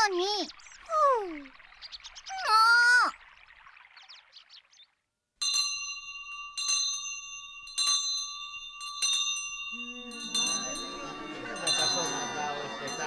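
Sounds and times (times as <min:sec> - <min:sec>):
school bell ringing: 0:05.4 - 0:13.0
babble of voices: 0:09.8 - 0:13.0.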